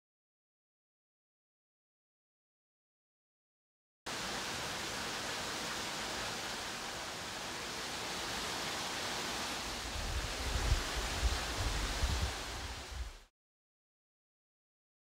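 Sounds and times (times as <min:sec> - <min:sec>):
waterfall rushing: 0:04.1 - 0:13.3.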